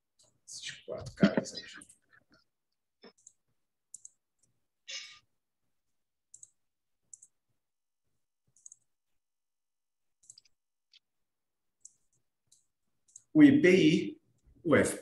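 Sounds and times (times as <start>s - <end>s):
keyboard and mouse clicks: 3.0s - 4.6s, 6.2s - 7.4s, 8.5s - 8.9s, 10.2s - 11.1s, 11.8s - 13.3s.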